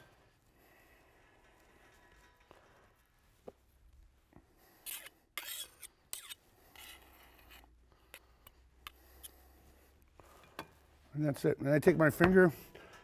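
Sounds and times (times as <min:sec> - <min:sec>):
palette knife scraping potato: 0:04.8 - 0:09.4.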